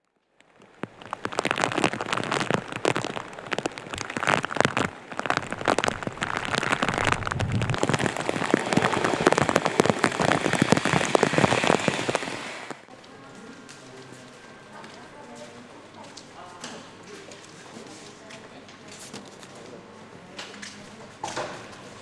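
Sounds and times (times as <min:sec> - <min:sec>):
raindrops hitting close by: 0:00.0 - 0:13.8
heavy rain hiss: 0:00.8 - 0:12.9.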